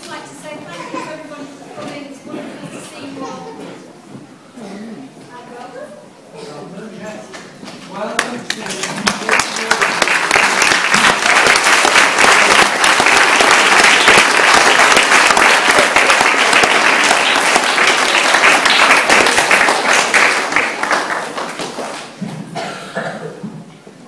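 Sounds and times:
audience applauding: 0:08.2 - 0:22.2.

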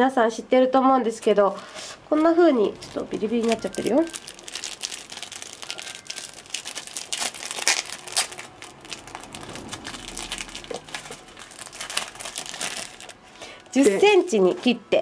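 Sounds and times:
plastic bag crinkling: 0:02.7 - 0:14.6.

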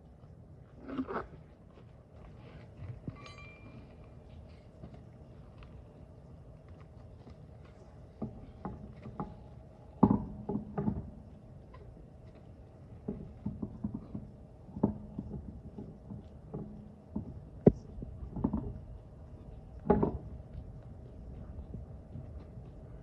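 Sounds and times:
knocks and clinks on car wheel: 0:10.0 - 0:11.2, 0:19.8 - 0:20.3.

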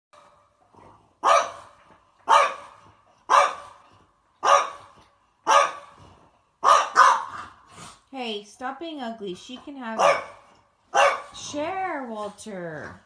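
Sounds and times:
dog barking: 0:01.2 - 0:03.8, 0:04.4 - 0:06.0, 0:06.6 - 0:07.4, 0:10.0 - 0:11.4.

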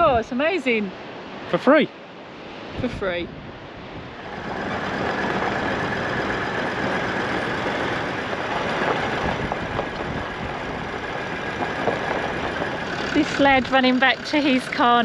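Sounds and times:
vehicle engine and tyre noise: 0:03.9 - 0:15.0.

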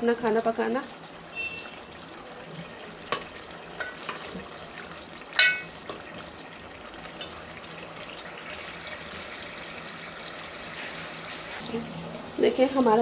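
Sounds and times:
masala sizzling in oil: 0:00.0 - 0:13.0
ladle scraping and clinking on pot: 0:05.4 - 0:05.7.

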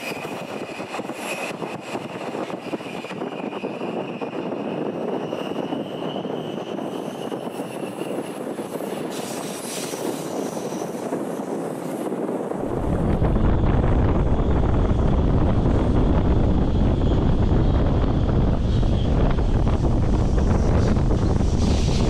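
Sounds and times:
train wheels rumbling on rails: 0:00.0 - 0:22.0
deep low rumble: 0:12.6 - 0:22.0.

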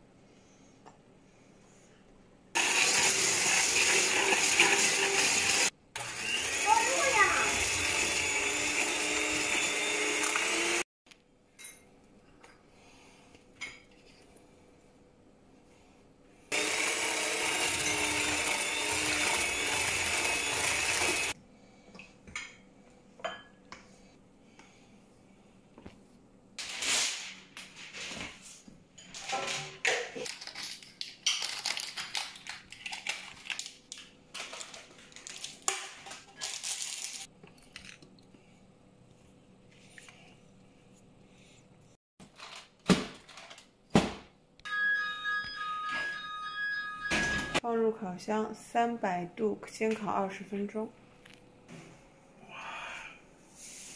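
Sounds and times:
electric hand mixer running: 0:02.6 - 0:10.9, 0:16.5 - 0:21.4.

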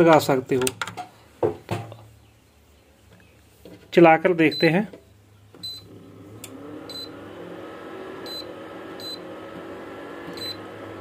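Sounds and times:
cooling fan humming: 0:03.0 - 0:11.0.

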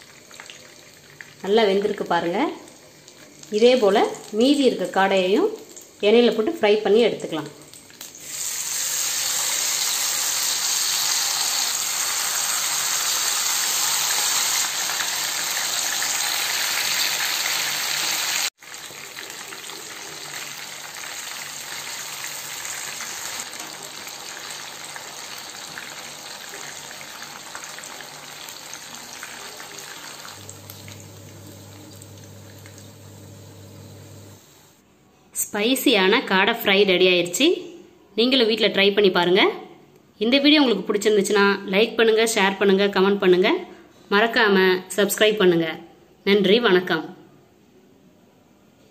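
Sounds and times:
meat sizzling in hot oil: 0:07.8 - 0:34.7.

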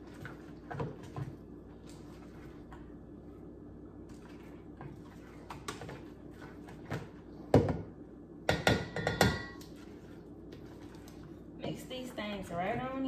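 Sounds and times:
metal bowl ringing: 0:08.8 - 0:09.6.

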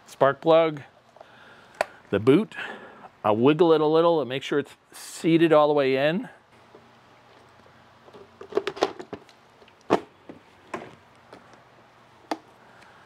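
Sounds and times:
plastic cover knocks and rattles: 0:08.1 - 0:09.3.

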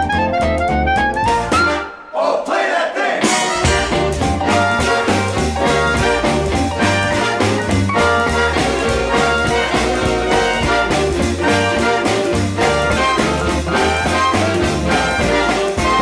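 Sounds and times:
big band swing music: 0:00.0 - 0:16.0.

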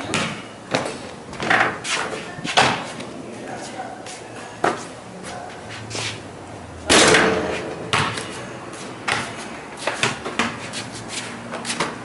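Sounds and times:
basketball bouncing on concrete: 0:00.0 - 0:01.8, 0:02.5 - 0:02.9, 0:06.9 - 0:08.4, 0:09.0 - 0:10.7.

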